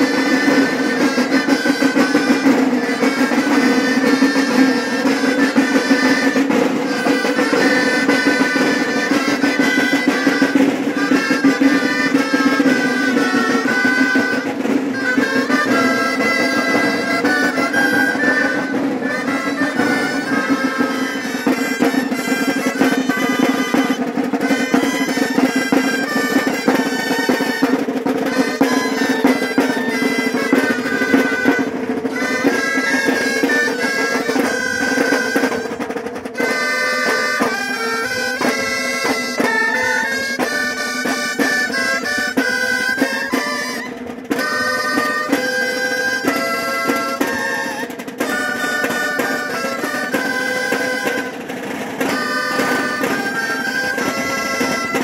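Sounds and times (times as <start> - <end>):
shawms playing marching melody: 0.0 - 55.0
side drums beating and rolling: 0.0 - 55.0.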